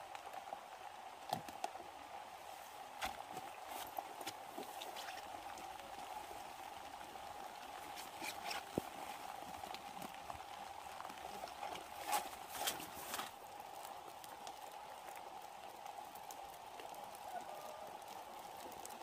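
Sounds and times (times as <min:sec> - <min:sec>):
crackling rustling clicks: 0:07.8 - 0:15.3.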